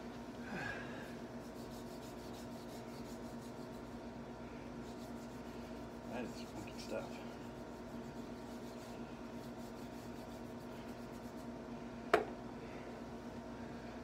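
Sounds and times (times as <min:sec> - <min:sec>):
low room hum: 0:00.0 - 0:14.0
hands rubbing chalk: 0:01.4 - 0:04.0, 0:04.8 - 0:11.6.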